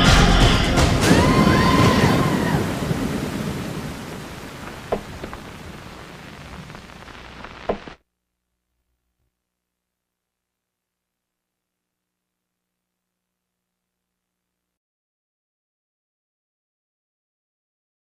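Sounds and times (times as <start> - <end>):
faint clicks: 4.1 - 8.0.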